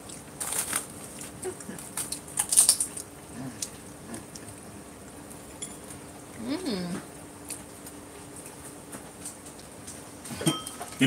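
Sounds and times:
crisp shells crackling: 0.1 - 3.2.

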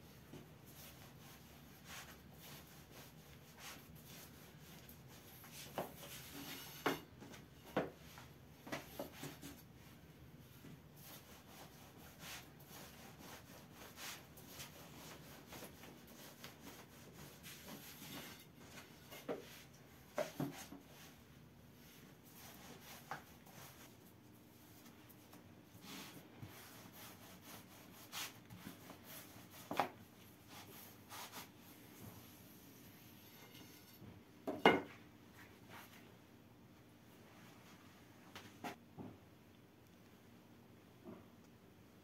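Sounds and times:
rolling pin rubbing on dough: 11.0 - 21.3, 25.8 - 31.6.

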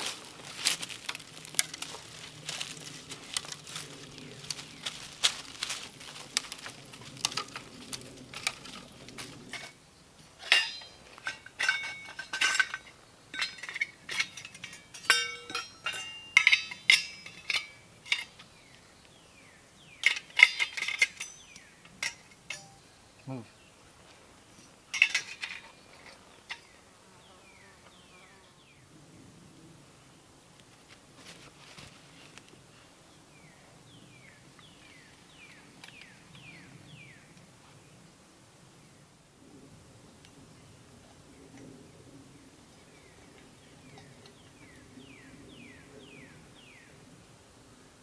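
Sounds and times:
twigs snapping: 0.0 - 9.4
metal stove and pot clattering: 10.4 - 18.4, 20.0 - 22.8, 24.9 - 26.7
ringing metal clinks: 10.4 - 18.4, 20.0 - 23.0.

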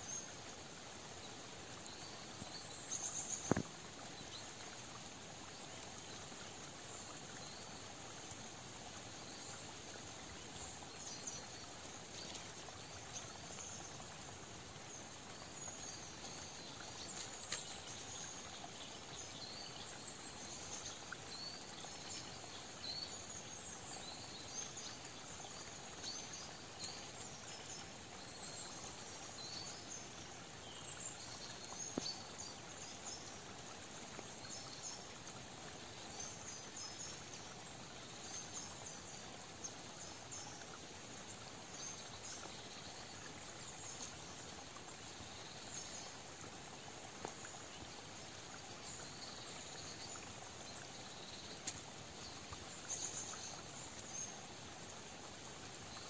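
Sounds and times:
steady faint hiss: 0.0 - 56.0
faint click: 3.2 - 3.8, 17.0 - 18.0, 51.6 - 51.8.

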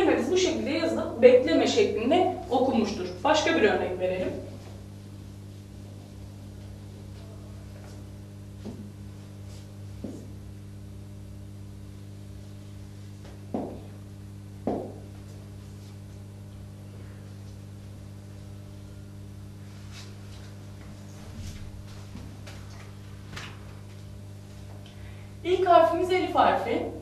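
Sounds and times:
electrical hum: 0.0 - 27.0
marker knocking on whiteboard: 13.5 - 13.9, 14.6 - 15.1.

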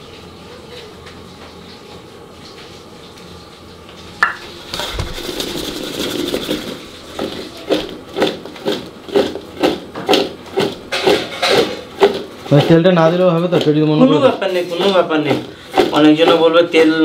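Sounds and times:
dough pieces rattling in metal bowl: 4.6 - 17.0.

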